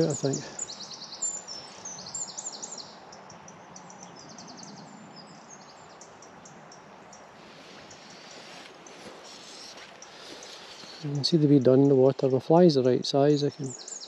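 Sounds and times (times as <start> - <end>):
small bird chirping: 0.0 - 11.9
river water flowing: 5.3 - 11.1.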